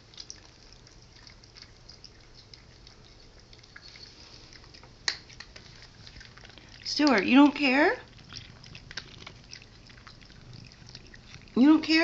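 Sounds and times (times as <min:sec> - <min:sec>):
animals chewing wetly: 0:00.0 - 0:12.0
low room hum: 0:00.0 - 0:12.0.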